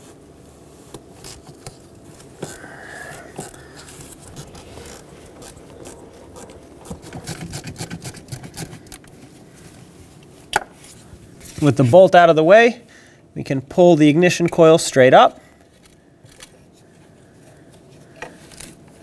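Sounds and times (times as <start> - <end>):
small metal clicks and scrapes: 15.6 - 16.6.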